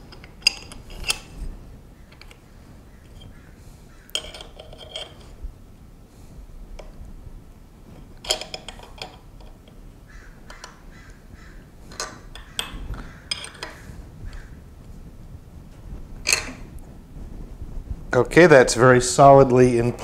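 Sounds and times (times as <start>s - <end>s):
steel clamps clinking and knocking: 4.1s - 5.4s, 8.1s - 9.6s, 11.9s - 13.8s, 16.3s - 16.6s.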